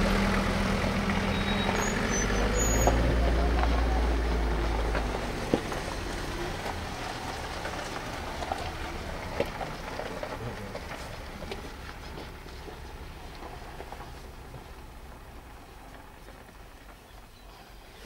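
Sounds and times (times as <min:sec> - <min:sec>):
vehicle engine idling: 0:00.0 - 0:18.0
faint crackling pattering: 0:02.5 - 0:18.0.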